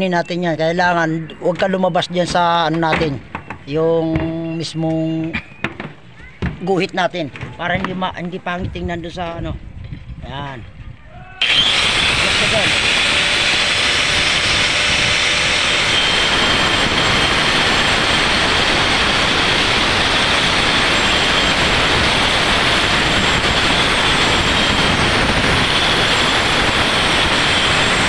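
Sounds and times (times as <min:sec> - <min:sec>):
angle grinder cutting concrete: 0:11.4 - 0:28.0.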